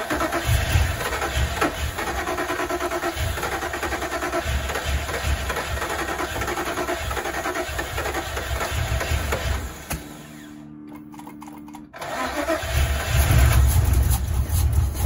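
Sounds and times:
engine running unevenly: 12.4 - 15.0.

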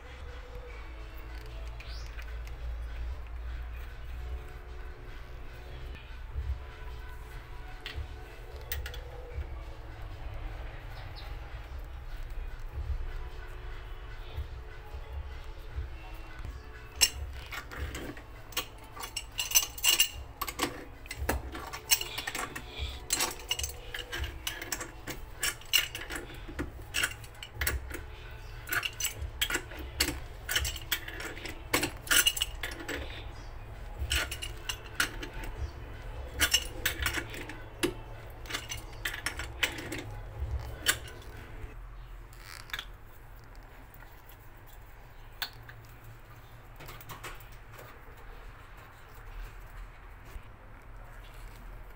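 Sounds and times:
metal pipe fittings clinking: 16.4 - 41.8.

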